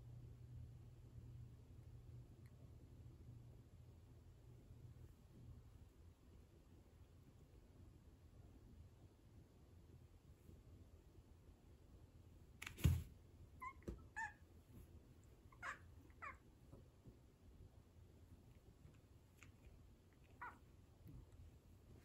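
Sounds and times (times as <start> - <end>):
cat meowing: 13.6 - 14.4, 15.5 - 16.4.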